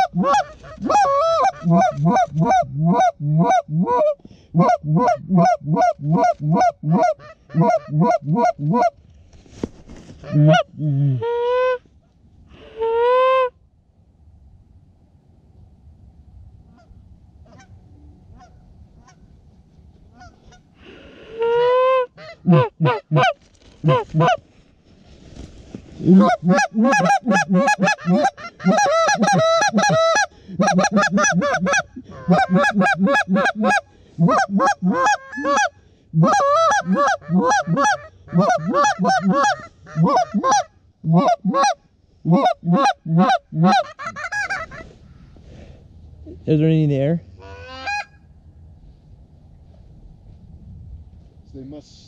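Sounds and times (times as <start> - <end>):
goose call honks and clucks: 0.0 - 9.0, 10.2 - 11.9, 12.6 - 13.5, 16.7 - 19.2, 20.1 - 20.6, 21.4 - 24.4, 26.0 - 45.0, 47.4 - 48.2.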